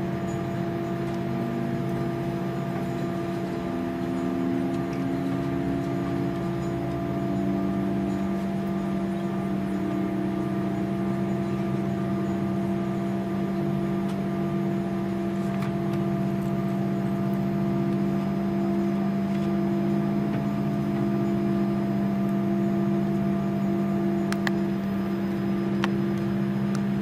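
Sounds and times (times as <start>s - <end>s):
steady hum tones: 0.0s - 27.0s.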